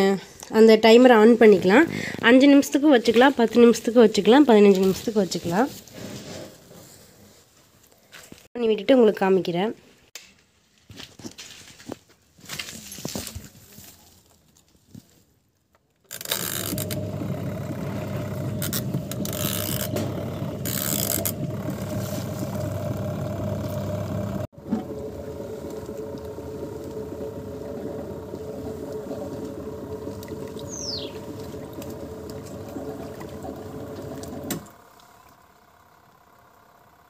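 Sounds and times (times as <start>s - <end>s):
washing machine motor humming: 16.1s - 37.0s
water and clothes churning: 16.3s - 35.4s.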